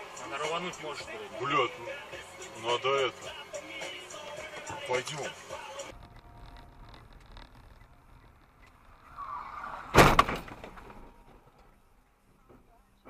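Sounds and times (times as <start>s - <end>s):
faint road noise: 0.0s - 13.0s
car crash impact: 9.3s - 11.5s.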